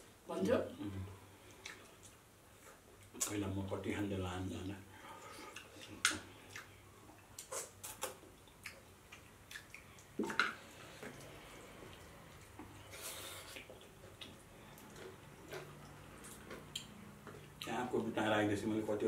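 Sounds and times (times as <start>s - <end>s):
lips smacking: 7.4s - 10.1s
sucking and slurping: 9.1s - 17.7s.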